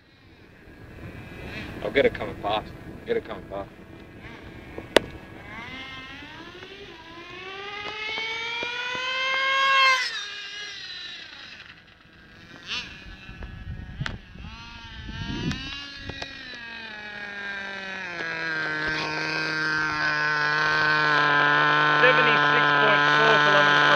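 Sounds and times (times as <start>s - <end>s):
toy car motor whining: 5.4s - 23.9s.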